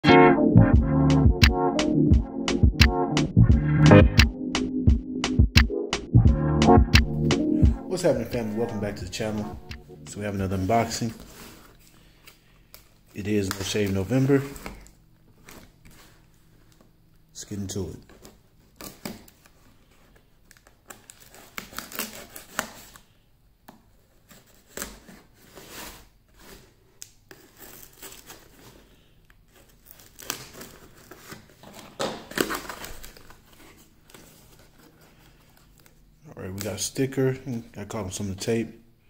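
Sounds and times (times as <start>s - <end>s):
cardboard flaps scraping and rustling: 10.1s - 11.9s, 24.0s - 28.9s, 29.5s - 35.9s
tape tearing: 18.1s - 19.6s, 20.4s - 23.0s, 24.2s - 28.8s, 29.5s - 35.2s
knife slitting packing tape: 20.6s - 23.0s, 27.2s - 28.6s, 29.7s - 31.5s.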